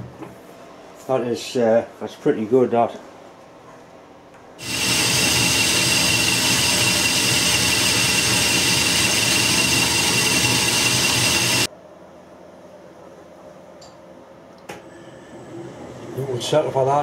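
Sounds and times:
lathe mechanical running noise: 4.6 - 11.7
metal lathe whine: 4.6 - 11.7.

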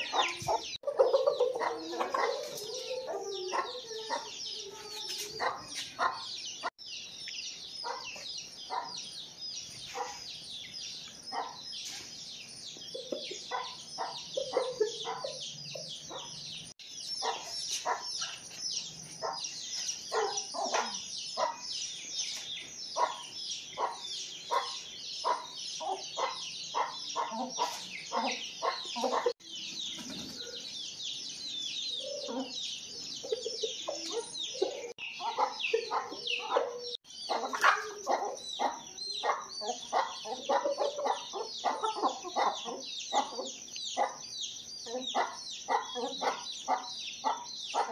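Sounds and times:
chickens clucking: 0.0 - 6.8, 11.0 - 16.6, 17.2 - 21.6, 22.2 - 47.9
high chirping: 0.0 - 47.9.

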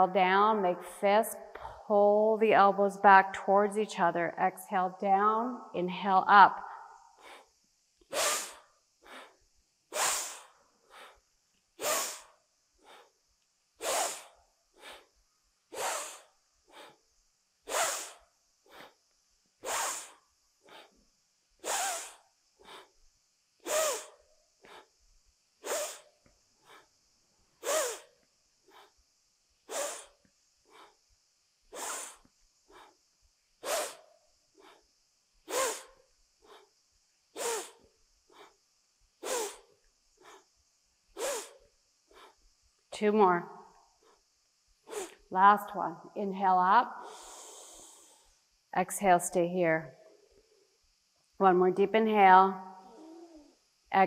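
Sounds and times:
woman breathing forcefully: 6.6 - 7.5, 8.1 - 13.2, 13.8 - 17.1, 17.7 - 19.0, 19.6 - 21.0, 21.6 - 23.0, 23.6 - 25.0, 25.6 - 27.0, 27.6 - 28.1, 28.7 - 29.0, 29.7 - 31.0, 31.7 - 33.0, 33.6 - 34.0, 34.6 - 34.9, 35.5 - 36.8, 37.4 - 38.6, 39.2 - 39.6, 40.2 - 40.5, 41.2 - 42.4, 44.9 - 45.2, 47.0 - 48.4.

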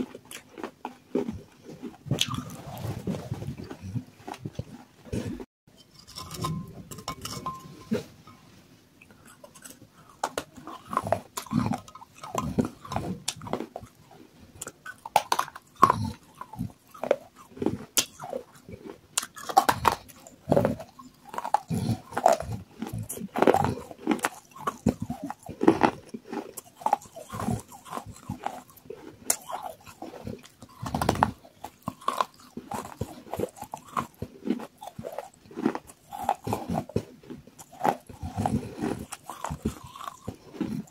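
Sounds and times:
chewing mouth noises: 0.0 - 5.4, 9.0 - 40.9
crunching clay pot pieces: 5.7 - 8.4, 14.6 - 40.9.

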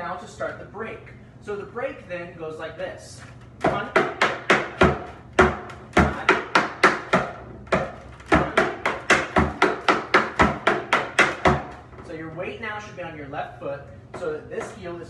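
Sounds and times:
tap shoes on wooden board: 3.6 - 11.9.

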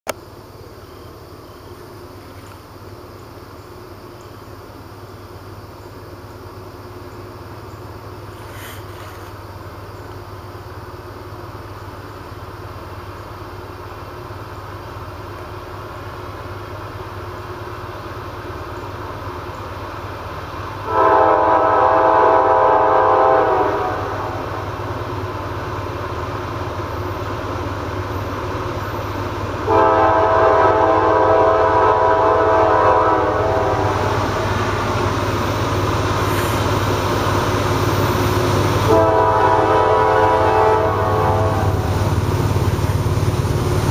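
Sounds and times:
diesel engines rumbling: 0.3 - 43.9
locomotive air horn blasts: 20.8 - 24.7, 29.6 - 34.2, 38.8 - 41.9.

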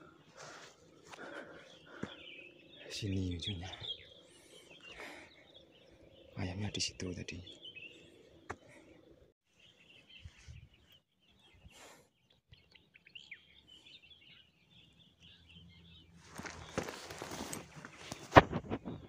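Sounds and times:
bird chirps: 0.0 - 19.0
rustling handling noise: 16.2 - 18.8.

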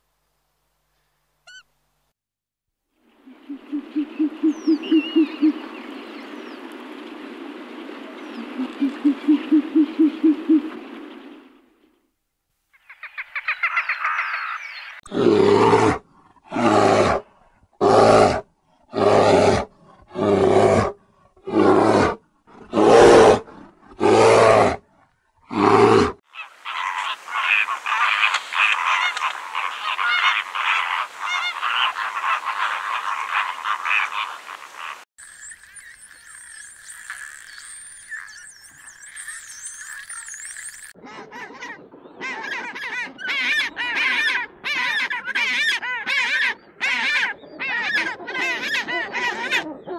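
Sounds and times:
bear growling: 15.0 - 26.2
bear rattling croak: 25.5 - 41.0.

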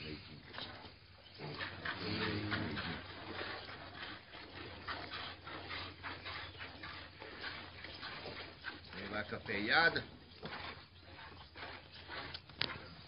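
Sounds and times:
piglet sucking and smacking: 10.4 - 13.0.

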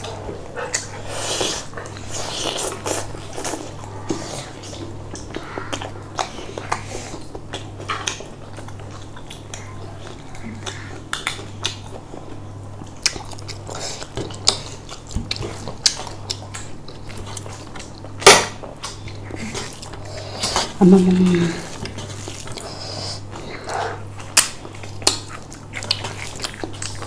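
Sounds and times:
chewing: 0.0 - 27.0
low hum: 20.8 - 21.9.

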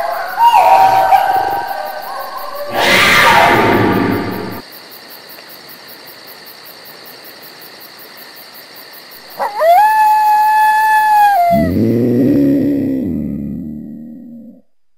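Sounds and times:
dog howling: 0.0 - 3.8, 9.3 - 14.6
rough noise: 2.5 - 4.6.

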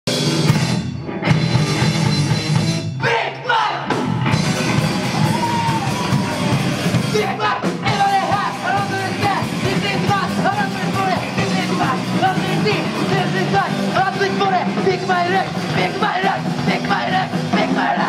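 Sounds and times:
rock band playing: 0.1 - 18.0
person singing: 7.1 - 18.0.

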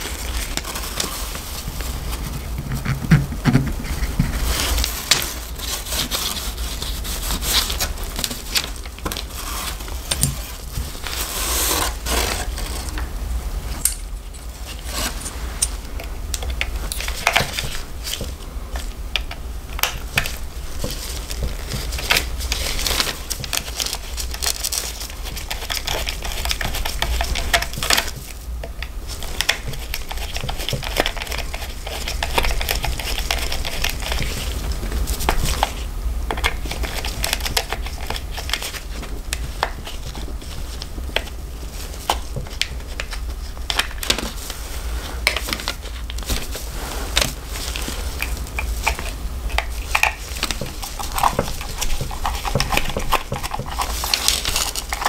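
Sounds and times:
handling noise on paper: 0.0 - 55.0
steady low hum: 0.0 - 55.0.

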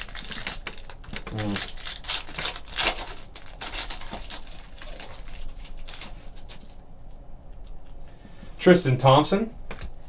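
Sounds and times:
plastic wrapper crinkling: 0.0 - 6.8.

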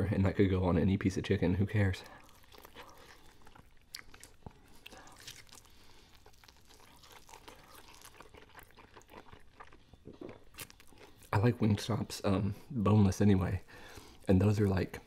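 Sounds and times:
faint chewing: 1.8 - 11.8.

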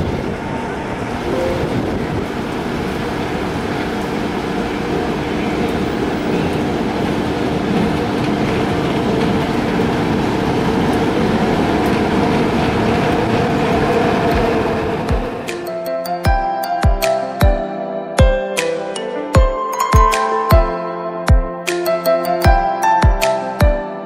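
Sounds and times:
train wheels on track: 0.0 - 15.8.

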